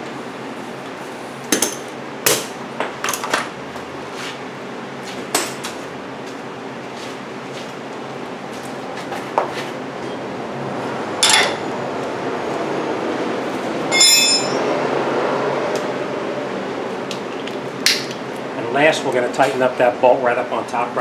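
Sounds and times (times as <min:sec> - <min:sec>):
steady background hum: 0:00.0 - 0:21.0
wrench clinking against metal: 0:11.2 - 0:11.6, 0:13.9 - 0:14.7.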